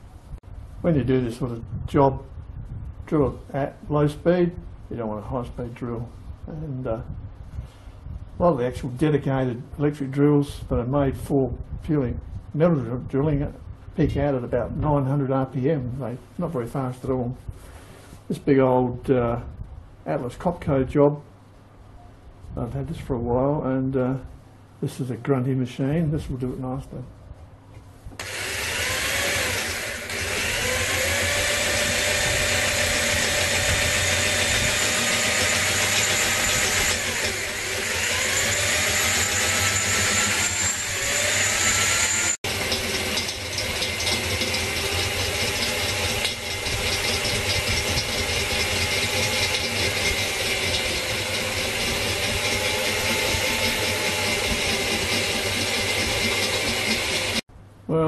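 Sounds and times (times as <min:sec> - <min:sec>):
electric drill boring into steel: 0:28.2 - 0:57.4.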